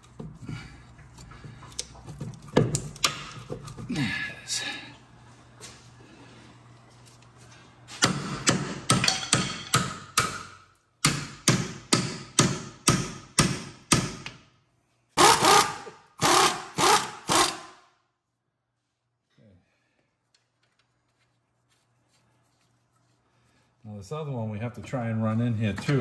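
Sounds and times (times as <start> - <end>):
hammer striking metal: 8.0 - 14.2.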